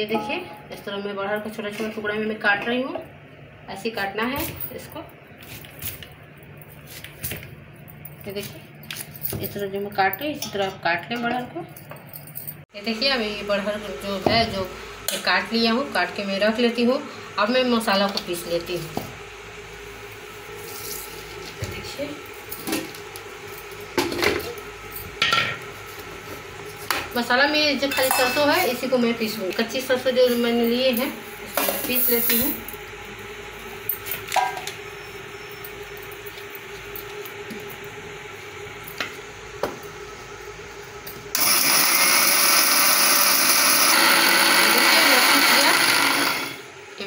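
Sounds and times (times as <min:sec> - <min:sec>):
mixer grinder grinding seeds: 0:20.0 - 0:24.7, 0:41.0 - 0:46.7.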